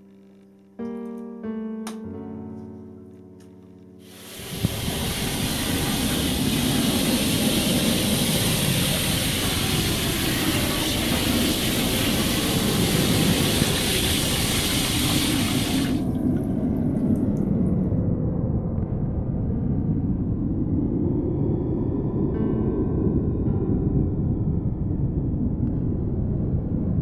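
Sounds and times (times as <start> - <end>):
water rushing into bathtub: 4.0 - 17.8.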